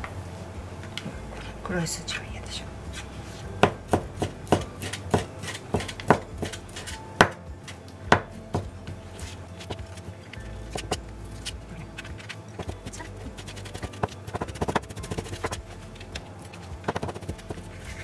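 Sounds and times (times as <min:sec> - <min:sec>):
knife chopping on plastic board: 0:03.6 - 0:07.4, 0:16.8 - 0:17.6.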